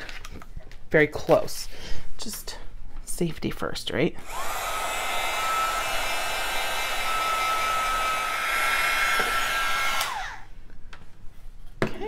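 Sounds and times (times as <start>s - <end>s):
heat gun blowing with fan whine: 4.2s - 10.6s.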